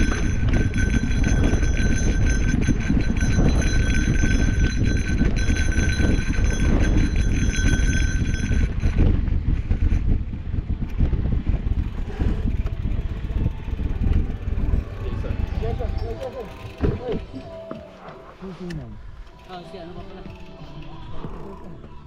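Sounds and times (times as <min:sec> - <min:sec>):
bike tyres rolling on dirt: 0:00.0 - 0:17.3
wind on microphone: 0:00.0 - 0:17.3
bike rattles and knocks: 0:00.0 - 0:17.9.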